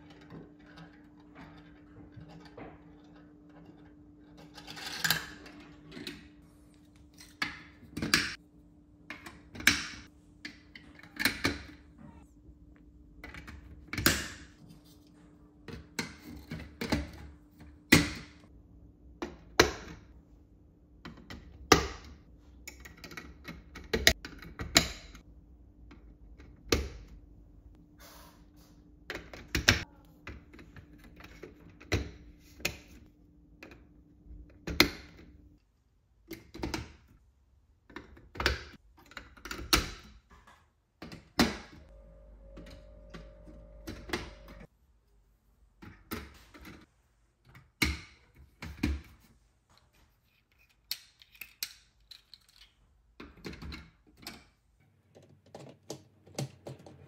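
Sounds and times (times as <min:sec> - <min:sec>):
plastic pieces clicking: 0:50.6 - 0:54.3.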